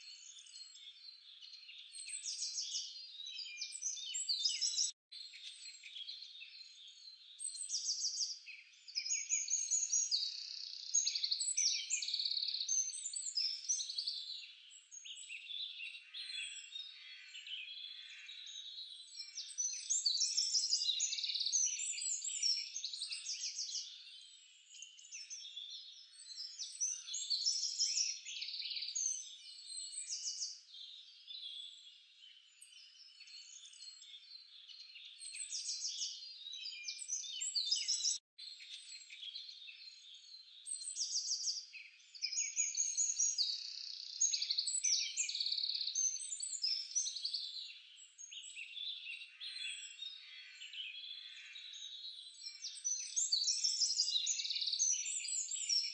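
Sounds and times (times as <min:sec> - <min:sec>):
birds chirping and trilling: 0:00.0 - 0:55.9.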